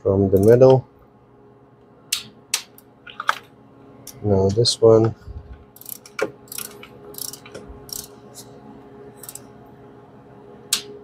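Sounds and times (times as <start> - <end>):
ratcheting torque wrench clicking: 5.8 - 8.1, 9.2 - 9.4.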